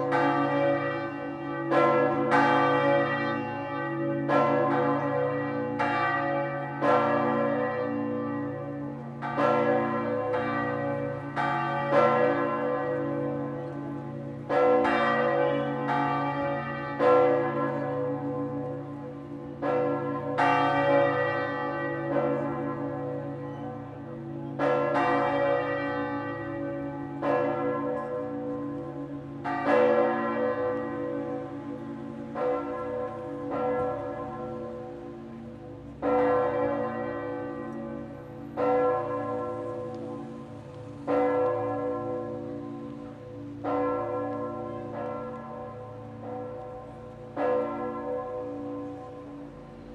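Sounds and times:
church bells ringing: 0.0s - 49.9s.

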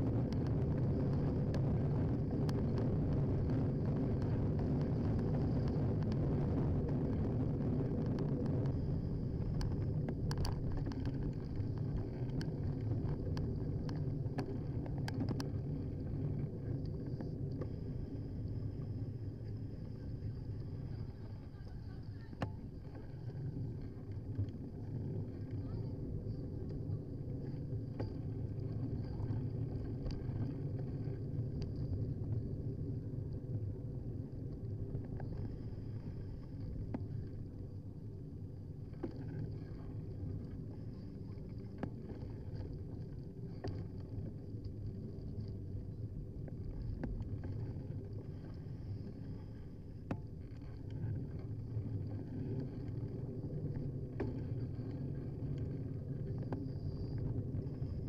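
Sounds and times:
bicycle tyres rumbling on road: 0.0s - 58.0s
small clicks and knocks: 9.5s - 15.6s.

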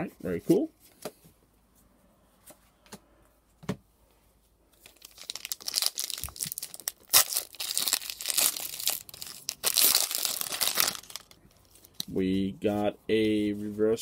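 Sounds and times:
foil wrapper crinkling: 4.8s - 12.1s.

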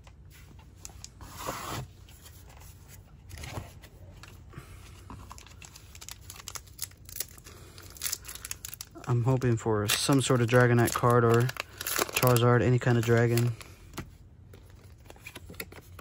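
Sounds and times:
foil wrapper crinkling and tearing: 5.3s - 13.7s.

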